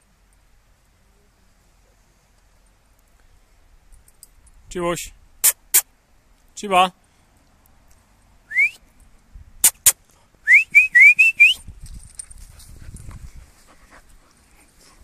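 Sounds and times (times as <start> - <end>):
person whistling: 8.5 - 8.8, 10.4 - 11.7
sharp clicks: 9.6 - 10.0.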